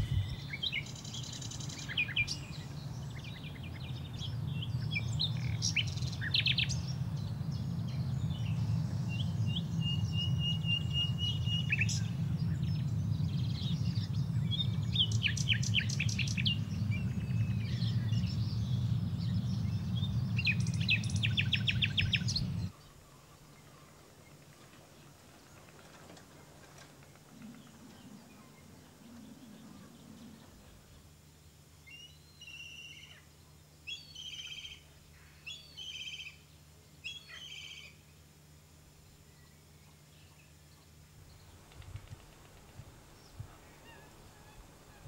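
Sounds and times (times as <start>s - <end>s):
steady low rumble: 0.0s - 22.7s
birds chirping and trilling: 0.0s - 24.4s, 27.2s - 38.1s, 39.4s - 45.0s.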